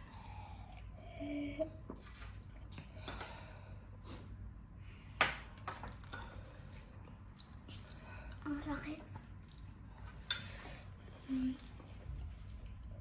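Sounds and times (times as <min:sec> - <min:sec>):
utensils clinking on dishes: 0:10.1 - 0:11.6.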